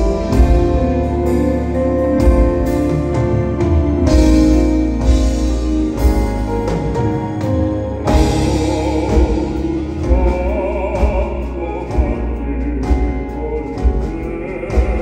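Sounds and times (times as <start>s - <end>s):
pop band drums and keyboards: 0.0s - 15.0s
man singing with vibrato: 8.1s - 15.0s.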